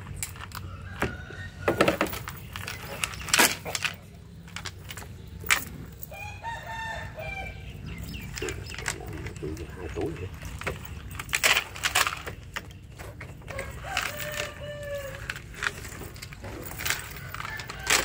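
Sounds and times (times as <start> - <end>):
rooster crowing: 0.6 - 2.0, 6.1 - 7.8, 13.5 - 15.4, 17.0 - 18.0.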